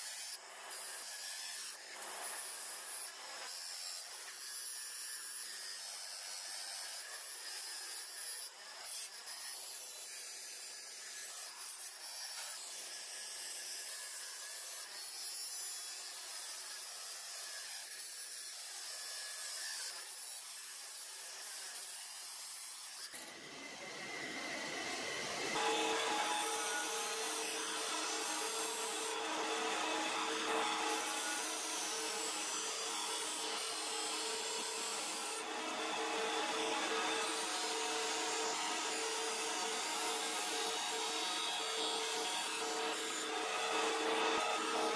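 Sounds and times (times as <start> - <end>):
grinder wheel grinding steel: 19.8 - 44.9.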